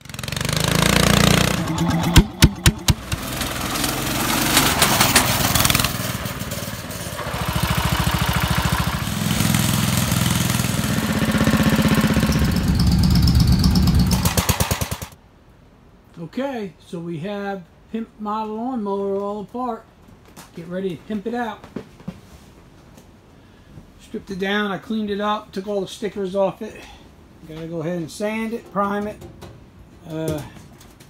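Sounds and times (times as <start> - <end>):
loud engine bangs: 0.0 - 15.2
small engine running: 0.0 - 15.2.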